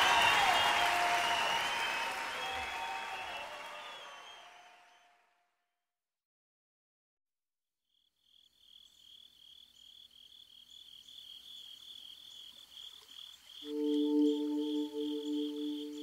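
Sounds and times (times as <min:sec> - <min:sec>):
high insect-like chirping: 0:08.0 - 0:16.0
held musical tones: 0:13.6 - 0:16.0.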